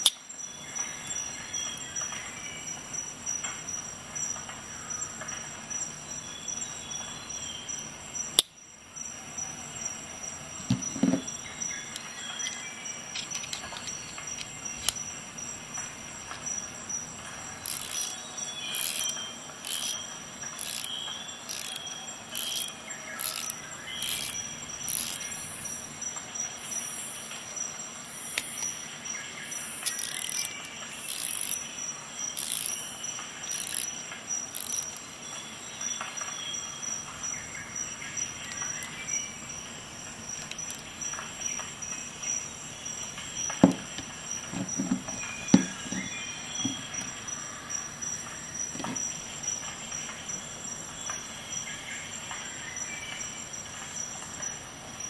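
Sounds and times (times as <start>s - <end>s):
sharp metallic clicks: 13.1s - 15.1s, 17.6s - 25.3s, 29.8s - 31.7s, 32.3s - 35.1s.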